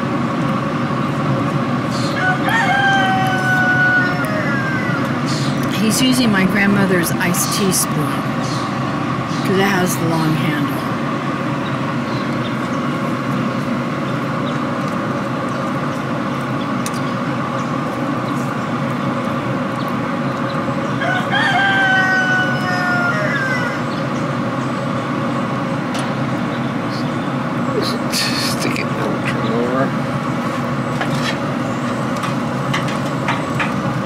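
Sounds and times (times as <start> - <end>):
steady background noise: 0.0 - 34.0
rooster crowing: 2.0 - 5.5, 20.8 - 24.1.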